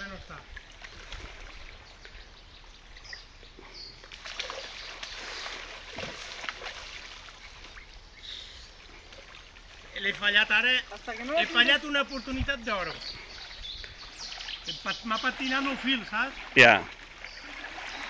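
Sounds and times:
water splashing around legs: 0:04.0 - 0:08.0, 0:08.9 - 0:18.0
stream rushing: 0:09.3 - 0:18.0.

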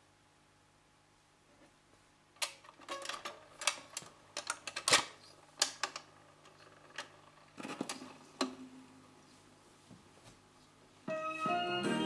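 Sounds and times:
faint steady hum: 0:00.0 - 0:12.0
record changer clicks and clunks: 0:02.4 - 0:08.7.

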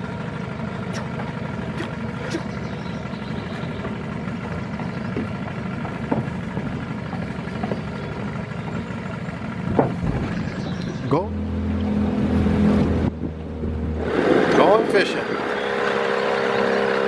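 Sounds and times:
low engine-like hum: 0:00.0 - 0:17.0
footsteps on wooden stairs: 0:03.5 - 0:10.9.

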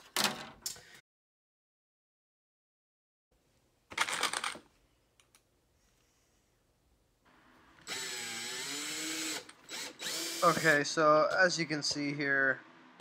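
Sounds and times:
cordless drill driving screw: 0:07.8 - 0:10.9.

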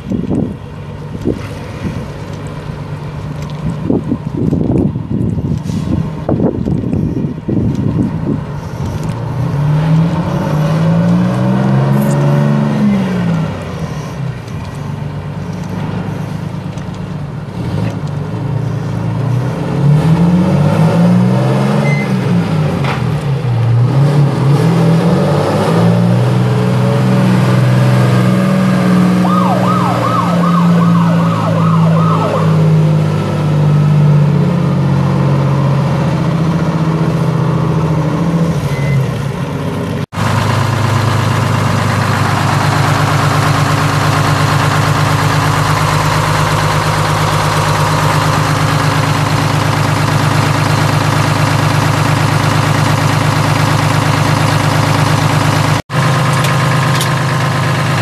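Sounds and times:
diesel truck engine: 0:00.0 - 0:58.0
warbling siren: 0:29.0 - 0:33.1.

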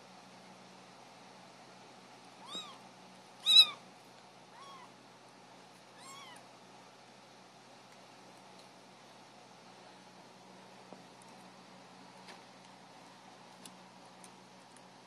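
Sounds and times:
kittens mewing: 0:02.4 - 0:02.8, 0:03.4 - 0:03.8, 0:04.5 - 0:04.9, 0:06.0 - 0:06.4.

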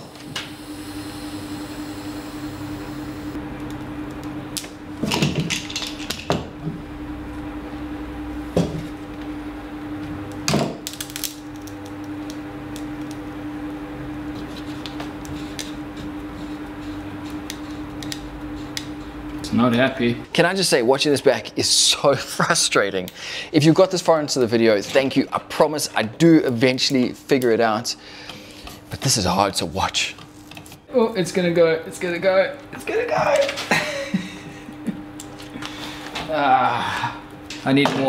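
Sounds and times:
low hum: 0:00.0 - 0:10.4.

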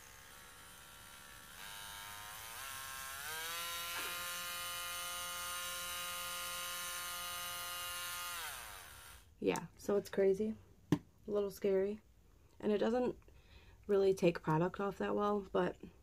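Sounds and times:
electric nail drill motor whining: 0:00.0 - 0:09.3.

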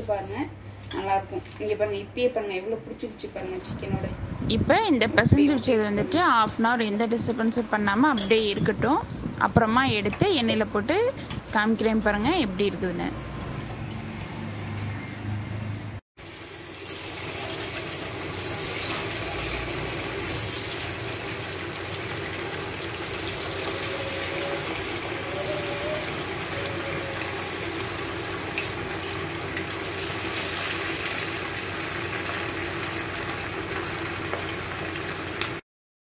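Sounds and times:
chicken deep-frying in hot oil: 0:16.2 - 0:35.6.

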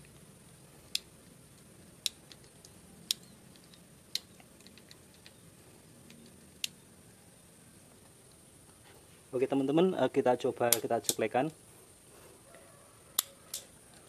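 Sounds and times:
gas stove igniter clicking: 0:10.7 - 0:11.3.

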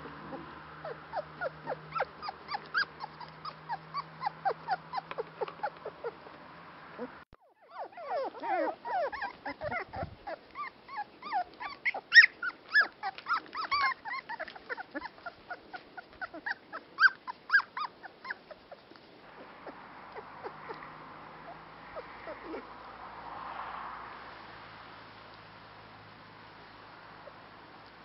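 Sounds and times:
puppies squealing and yelping: 0:00.0 - 0:22.8, 0:27.2 - 0:27.5.

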